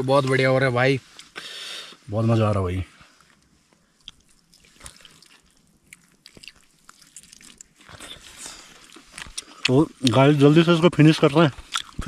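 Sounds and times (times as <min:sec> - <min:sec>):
person chewing chicken: 0:04.0 - 0:10.2, 0:11.6 - 0:12.0.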